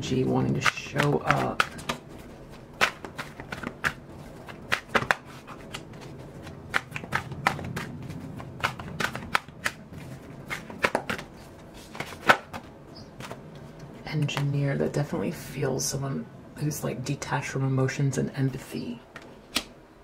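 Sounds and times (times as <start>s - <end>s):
cards being shuffled: 0.5s - 14.4s.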